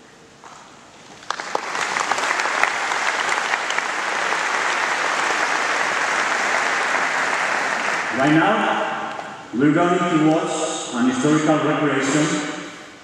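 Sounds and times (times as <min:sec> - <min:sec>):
audience applause: 0:01.1 - 0:08.4.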